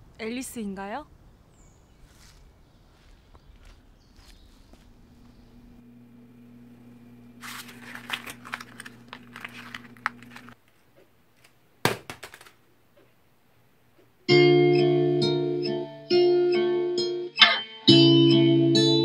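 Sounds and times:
paper ball hitting wastebasket: 7.4s - 10.6s, 11.4s - 12.6s
paper crumpling: 7.4s - 10.8s.

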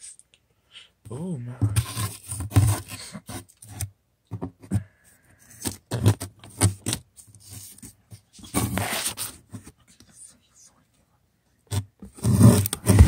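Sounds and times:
hard objects scraping and knocking: 1.5s - 9.6s, 11.7s - 13.0s.

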